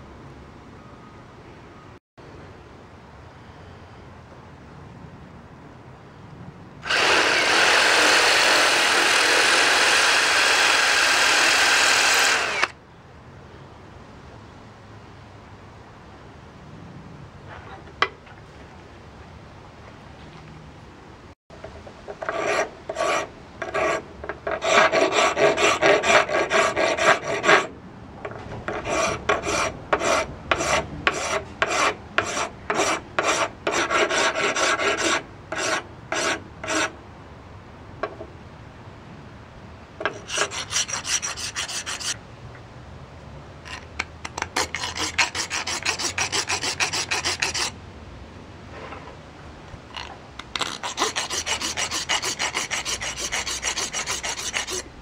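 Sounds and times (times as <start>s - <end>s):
rasp filing stone: 6.9s - 12.7s, 22.2s - 27.7s, 28.7s - 36.9s, 40.1s - 42.2s, 43.7s - 47.7s, 50.4s - 54.9s.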